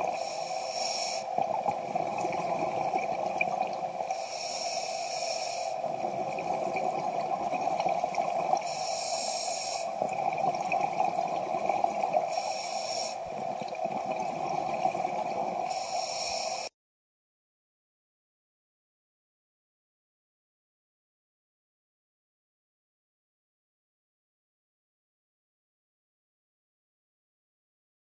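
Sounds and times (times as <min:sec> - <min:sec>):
bubbling exhales: 0:00.0 - 0:16.7
regulator hissing inhales: 0:00.1 - 0:01.4, 0:04.1 - 0:05.8, 0:08.6 - 0:10.0, 0:12.2 - 0:13.3, 0:15.7 - 0:16.7.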